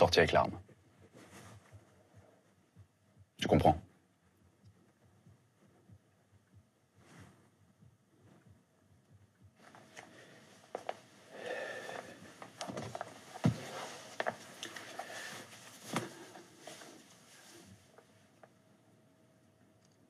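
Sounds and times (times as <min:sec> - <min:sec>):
chair rustling and handling: 0:01.0 - 0:02.1, 0:12.2 - 0:18.0.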